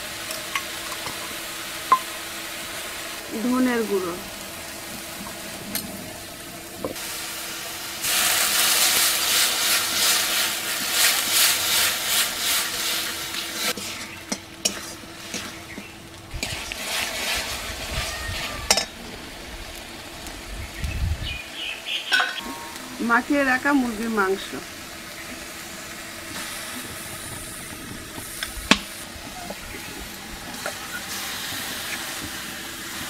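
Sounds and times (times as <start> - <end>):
spice paste sizzling in oil: 0.0 - 33.0
metal spatula scraping: 13.6 - 18.9.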